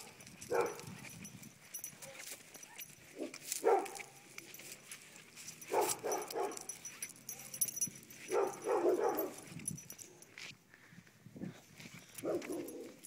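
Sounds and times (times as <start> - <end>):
dog barking: 0.0 - 0.9, 3.1 - 4.2, 5.7 - 9.5, 12.2 - 13.0.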